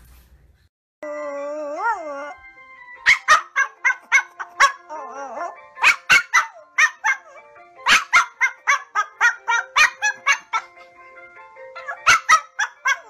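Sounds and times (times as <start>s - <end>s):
dog whining: 1.0s - 2.4s, 3.1s - 10.8s.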